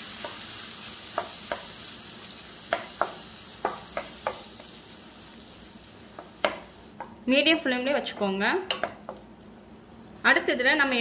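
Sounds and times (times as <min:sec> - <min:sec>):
food sizzling in a pan: 0:00.0 - 0:11.0
wooden spatula knocking pan: 0:02.7 - 0:04.7, 0:06.1 - 0:07.2, 0:08.1 - 0:09.2.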